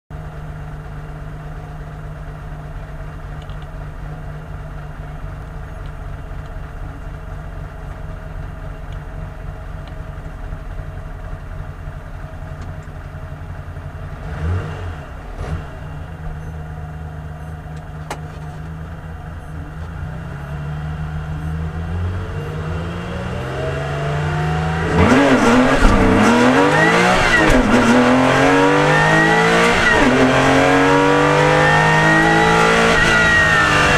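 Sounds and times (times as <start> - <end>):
car engine revving: 12.2 - 33.9.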